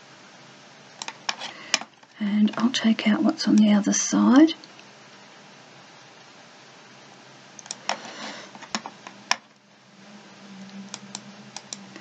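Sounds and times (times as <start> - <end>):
mouse and keyboard clicks: 7.6 - 8.0.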